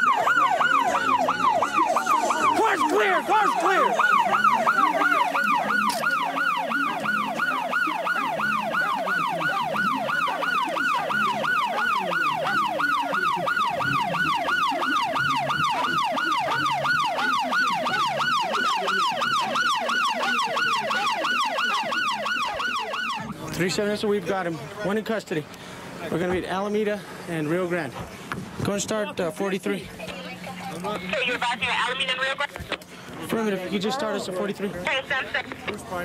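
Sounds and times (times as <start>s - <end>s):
police siren yelping: 0.0s - 23.4s.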